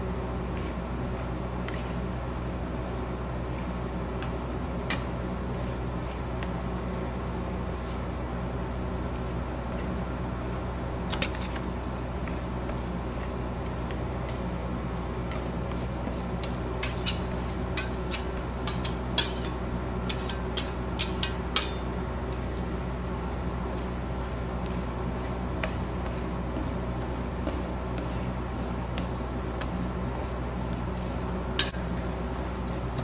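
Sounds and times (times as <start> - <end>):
steady low hum: 0.0 - 33.0
metal spatulas tapping on steel pan: 20.1 - 21.9.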